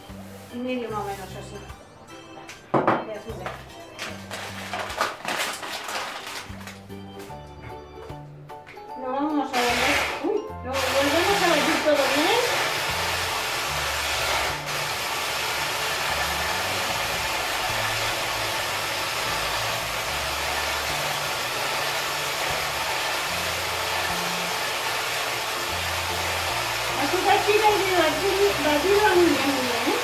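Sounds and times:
electric mixer beating liquid: 9.6 - 30.0.

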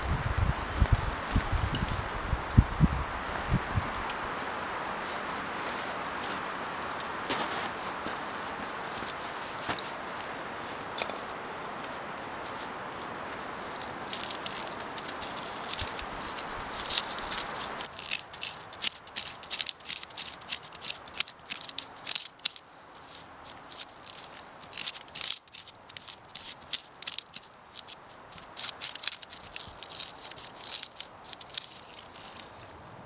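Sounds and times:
knife scraping birch bark: 13.6 - 32.8.

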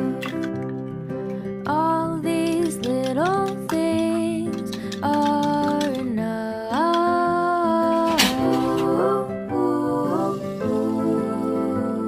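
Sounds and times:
acoustic guitar: 0.0 - 12.0
person singing long notes: 5.2 - 12.0.

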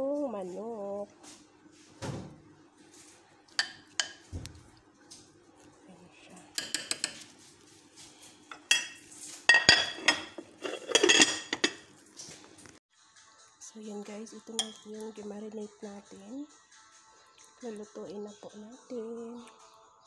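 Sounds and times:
spoon clinking against glass bowl: 3.6 - 4.3, 6.6 - 7.2, 8.5 - 11.8, 14.6 - 15.0.

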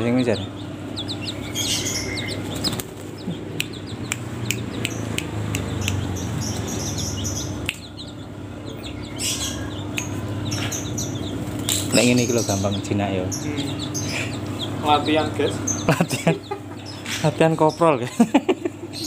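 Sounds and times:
chicks chirping high peeps: 0.0 - 19.0
wings fluttering: 1.2 - 3.5, 10.6 - 12.1
sharp clicks: 2.4 - 6.7, 9.7 - 10.6.

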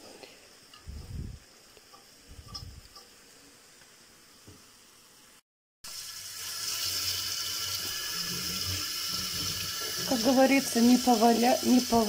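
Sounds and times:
tap water running into sink: 5.9 - 12.0.

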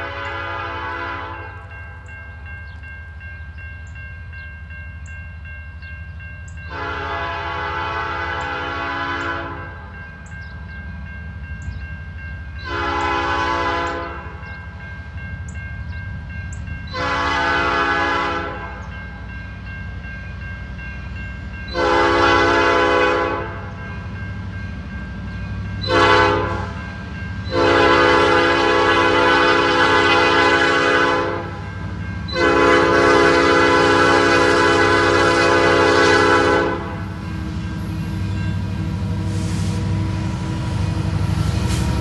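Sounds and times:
locomotive air horn blasts: 0.0 - 1.6, 6.7 - 9.8, 12.7 - 14.4, 16.9 - 18.8, 21.7 - 23.7, 25.8 - 26.8, 27.5 - 31.7, 32.3 - 38.4
low rumble of train: 0.0 - 42.0.

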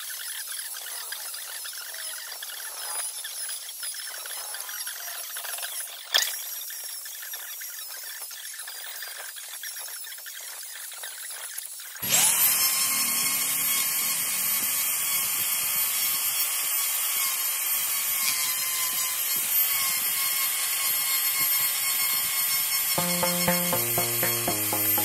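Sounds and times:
carving tool whining: 12.0 - 25.0.

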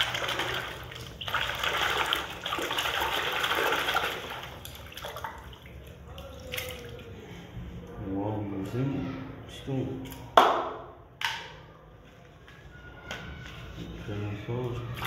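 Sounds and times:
hand splashing water in a tub: 0.0 - 7.4.

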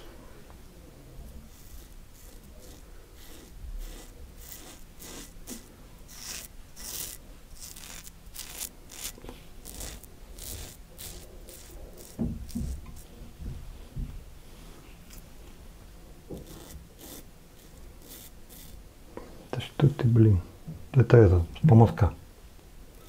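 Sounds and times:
razor scraping stubble: 1.2 - 13.2, 15.0 - 15.3, 16.3 - 18.8.

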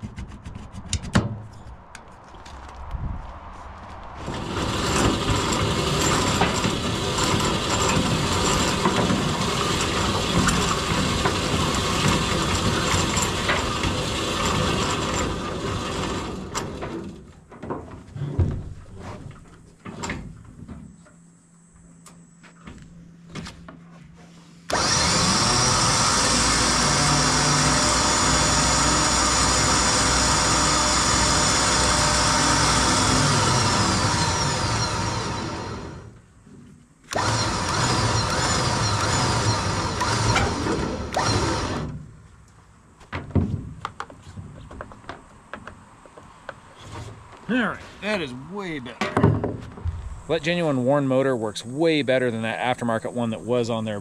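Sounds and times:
winch motor whining: 4.2 - 17.1, 24.7 - 36.3, 37.1 - 42.0.

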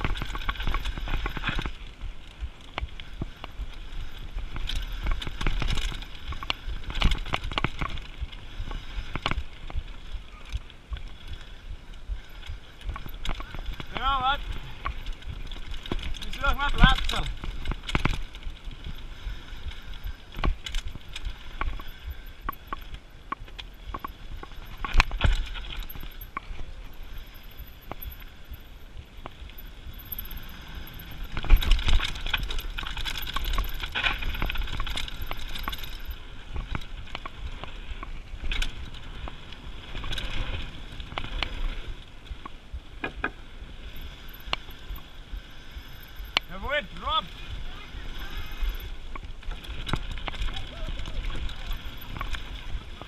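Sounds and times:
bike rattling and knocking: 0.0 - 53.0
bike tyres on dirt trail: 0.0 - 53.0.

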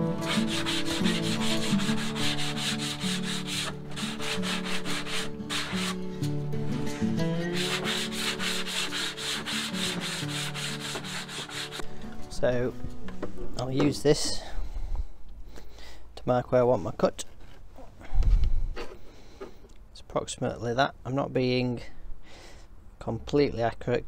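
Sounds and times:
faint background music: 0.0 - 14.6
sanding block rasping on plastic: 0.3 - 6.0, 7.5 - 11.8.

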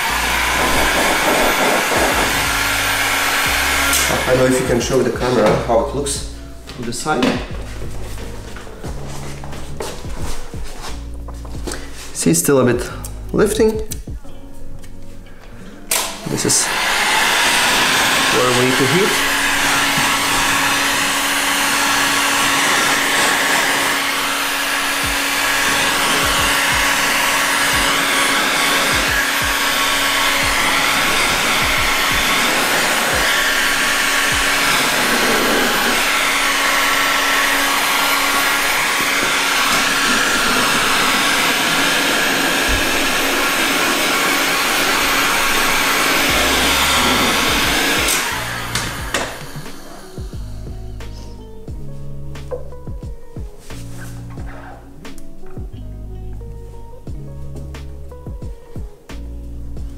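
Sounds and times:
heat gun blowing hot air: 0.0 - 6.2, 15.9 - 51.3.

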